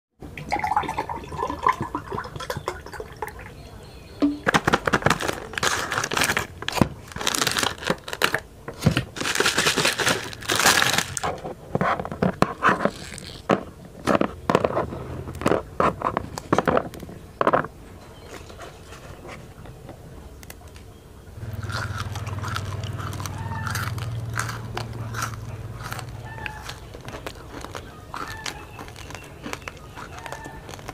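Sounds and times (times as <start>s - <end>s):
drink pouring into a glass: 0.3s - 3.5s
plastic wrapper crinkling and tearing: 4.4s - 14.7s, 21.5s - 30.9s.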